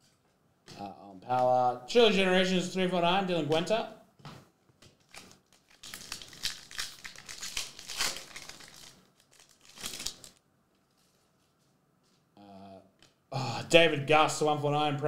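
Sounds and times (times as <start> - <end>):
foil wrapper crinkling: 5.0 - 10.4.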